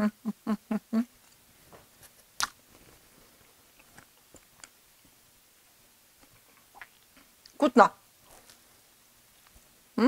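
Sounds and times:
chewing: 2.0s - 4.8s.

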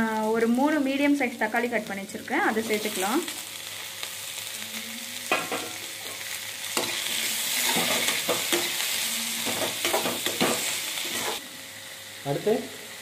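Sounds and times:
onions sizzling in butter: 0.0s - 13.0s
metal ladle scraping a pan: 6.8s - 8.8s, 9.4s - 11.4s.

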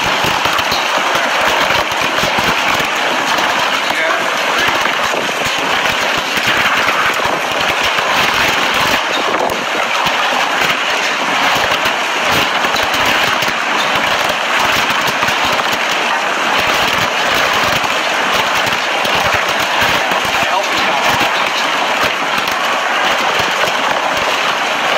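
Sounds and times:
heavy rain and wind: 0.0s - 24.9s.

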